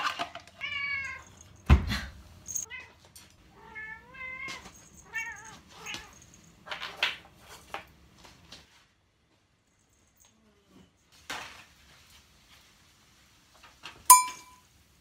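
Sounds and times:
cat meowing: 3.5 - 6.2.

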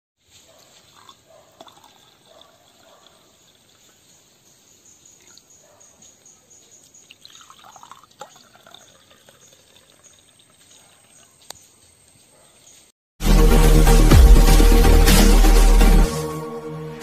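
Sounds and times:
wine pouring into a glass: 7.1 - 10.6.

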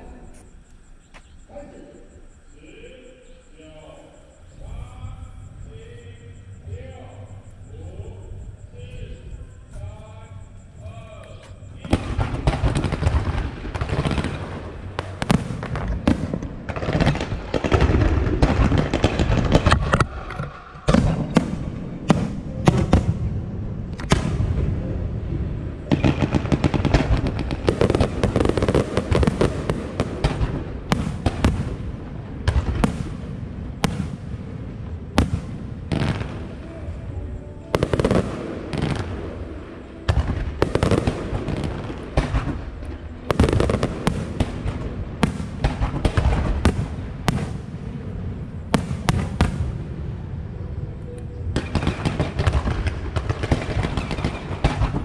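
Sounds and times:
firework crackling: 11.8 - 24.6, 25.6 - 34.5, 51.6 - 55.0
firework shells bursting: 11.9 - 23.1, 51.6 - 55.0.

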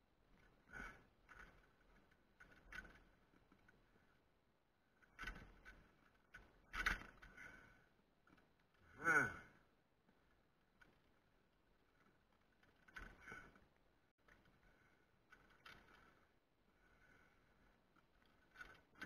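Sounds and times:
person breathing heavily: 8.9 - 9.6
person sighing: 8.9 - 9.6.

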